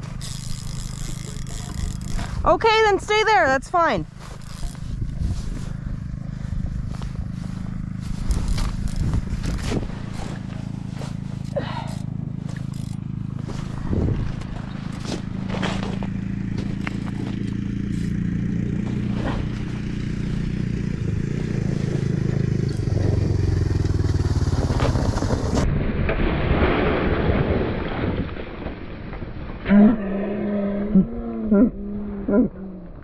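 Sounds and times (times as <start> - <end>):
scrapes and clicks: 0.0 - 3.0, 4.2 - 5.6, 8.1 - 18.2
small engine running: 0.0 - 25.6.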